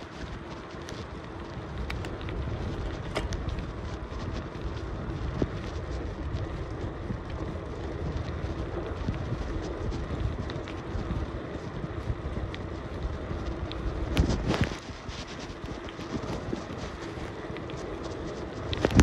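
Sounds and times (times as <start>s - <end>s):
bicycle rumble: 0.0s - 19.0s
wind buffeting microphone: 0.0s - 19.0s
sharp ticks and knocks: 1.9s - 3.7s.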